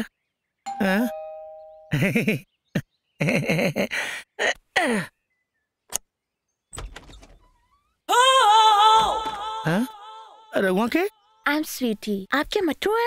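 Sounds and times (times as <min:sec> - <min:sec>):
two-note doorbell chime: 0:00.7 - 0:02.0
wooden door opening rustle: 0:06.7 - 0:07.9
door bolt and handle clicks: 0:06.8 - 0:07.5.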